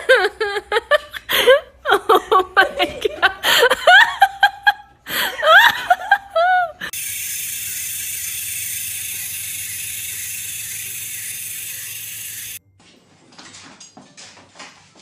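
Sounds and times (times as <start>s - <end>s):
toy motor whirring: 6.8s - 12.6s.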